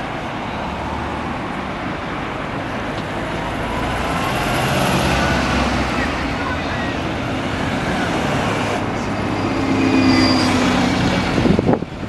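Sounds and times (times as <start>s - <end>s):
bus engines in passing traffic: 0.0s - 12.0s.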